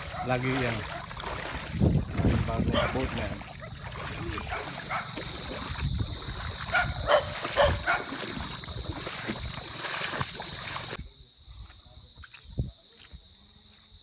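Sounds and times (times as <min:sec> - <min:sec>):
dog barking: 0:00.0 - 0:01.1, 0:02.7 - 0:03.0, 0:04.4 - 0:05.2, 0:06.7 - 0:08.2
high-pitched insect drone: 0:03.4 - 0:11.5.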